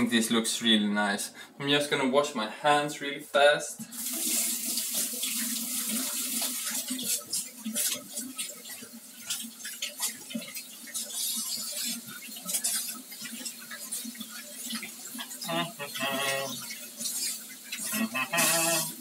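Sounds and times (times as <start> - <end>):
water splashing in sink: 3.8 - 19.0.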